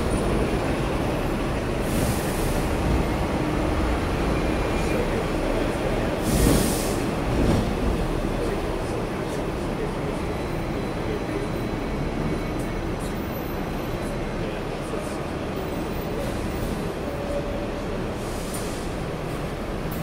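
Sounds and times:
tram rumbling on track: 0.0 - 20.0
short air hisses: 6.2 - 7.1.

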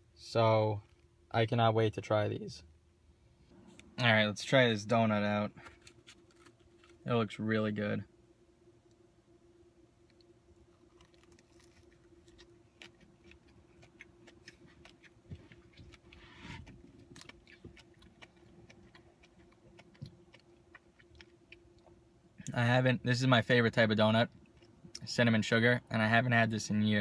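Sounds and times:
low steady hum: 0.0 - 27.0
mouth chewing clicks and smacks: 10.1 - 22.5.

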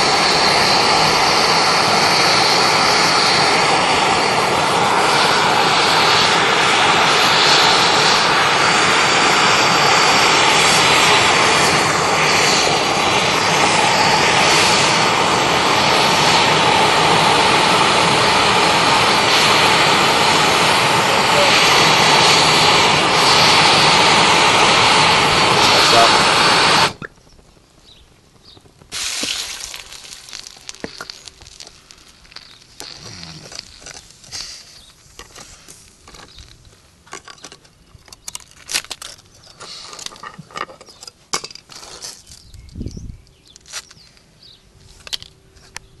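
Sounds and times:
blowtorch flame roaring: 0.0 - 36.1
tool clicking and scraping on stone: 29.2 - 34.4.

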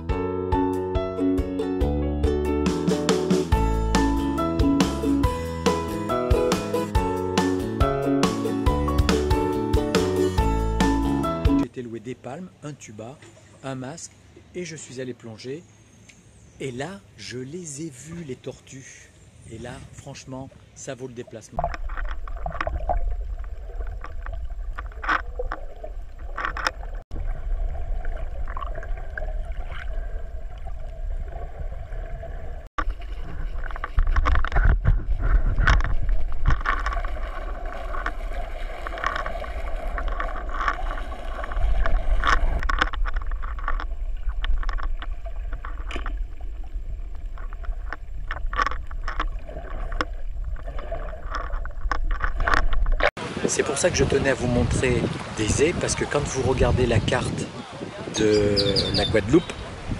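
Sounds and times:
underwater clicks and crackles: 21.2 - 53.1
muffled underwater rumble: 21.6 - 53.1.

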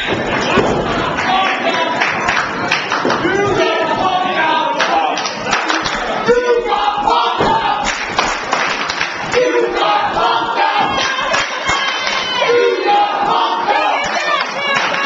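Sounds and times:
crowd clapping: 0.0 - 3.7, 4.7 - 6.2, 7.8 - 9.8, 10.6 - 12.5, 13.9 - 15.0
crowd chanting: 0.0 - 15.0.

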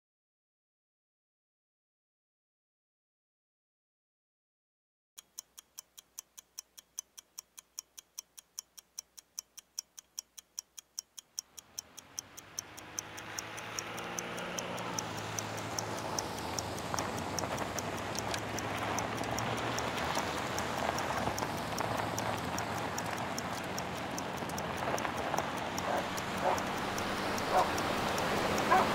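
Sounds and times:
regular ticking: 5.2 - 28.9
rushing noise with low hum: 13.2 - 28.9.

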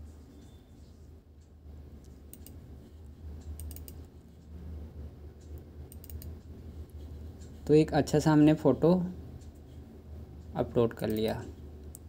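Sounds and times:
steady low hum: 0.0 - 12.0
computer mouse clicking: 2.0 - 2.6, 3.4 - 4.1, 5.4 - 6.5, 11.0 - 12.0.

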